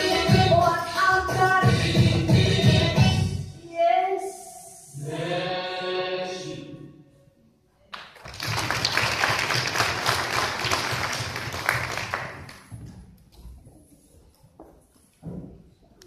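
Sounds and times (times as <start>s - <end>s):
belly-dance music: 0.0s - 3.5s
audience applause: 8.0s - 12.7s.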